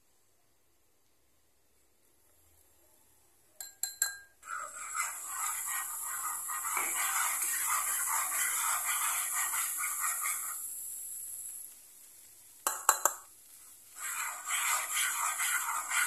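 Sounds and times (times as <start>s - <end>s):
whisk scraping metal pan: 4.4s - 10.7s, 13.8s - 16.0s.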